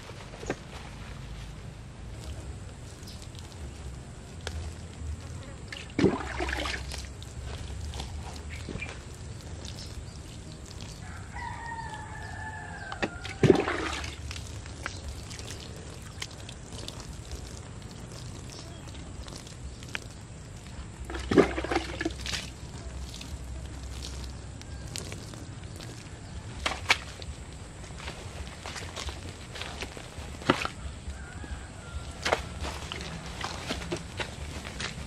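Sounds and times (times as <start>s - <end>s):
water splashing onto soil: 2.1s - 35.0s
rooster crowing: 11.0s - 13.5s, 30.8s - 32.9s.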